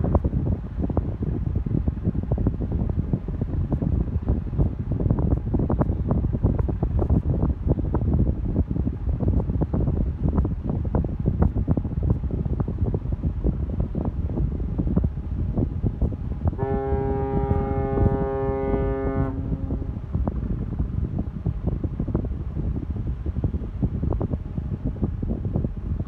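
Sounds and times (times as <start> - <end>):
wind buffeting microphone: 0.0 - 26.0
ship's horn blast: 16.6 - 20.2.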